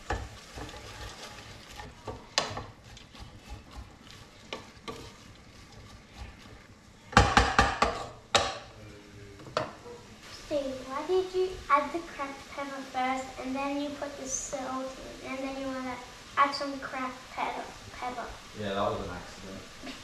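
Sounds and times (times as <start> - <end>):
wooden spoon stirring leeks: 0.0 - 8.2
faint sizzle: 0.0 - 20.0
spoon knocking on pot: 7.1 - 8.7.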